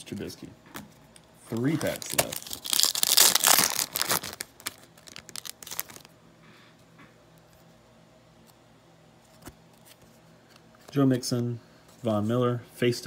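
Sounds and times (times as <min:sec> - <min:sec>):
wrapper crackling as torn open: 0:01.5 - 0:06.1.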